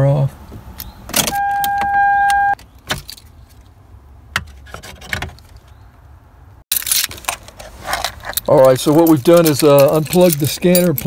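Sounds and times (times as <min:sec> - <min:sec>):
car keys jingling: 0:00.8 - 0:03.4, 0:06.7 - 0:11.0
steady electronic tone: 0:01.3 - 0:02.6
scraping rustle: 0:06.8 - 0:11.0.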